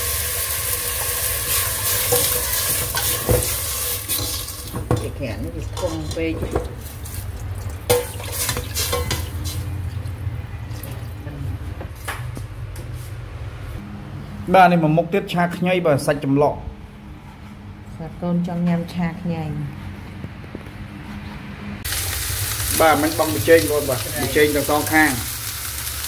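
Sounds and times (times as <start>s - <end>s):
water pouring into a metal pot: 6.8s - 9.6s.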